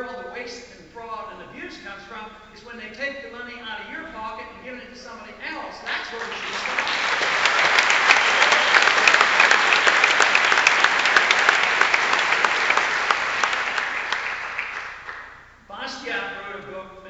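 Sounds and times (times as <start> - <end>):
large audience applauding: 5.9 - 15.4.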